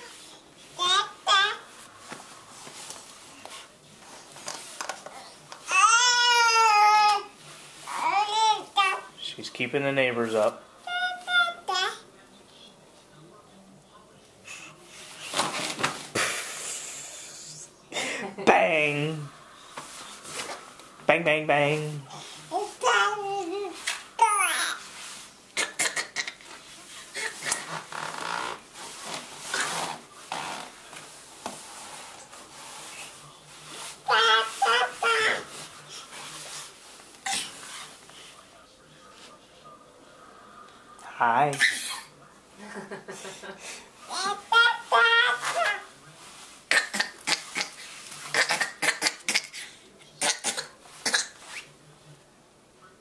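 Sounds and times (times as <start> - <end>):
baby moving on crib mattress: 26.5 - 38.4.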